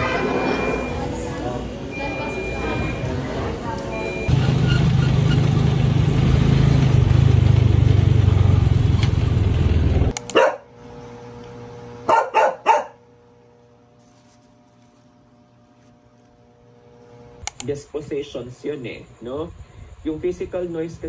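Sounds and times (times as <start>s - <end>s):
faint steady hum: 10.1s - 21.0s
dog barking: 10.2s - 10.7s, 12.0s - 13.0s.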